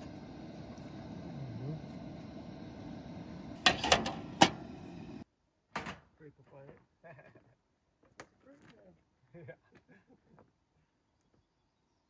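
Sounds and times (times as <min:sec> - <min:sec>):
metal plates clanking: 0:03.6 - 0:04.6.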